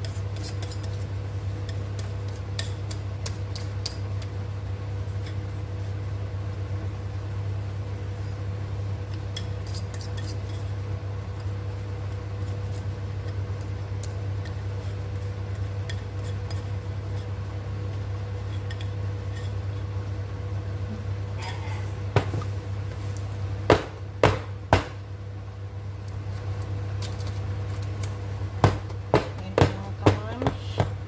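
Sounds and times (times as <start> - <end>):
steady low hum: 0.0 - 31.0
whisk scraping batter from bowl: 14.4 - 17.4.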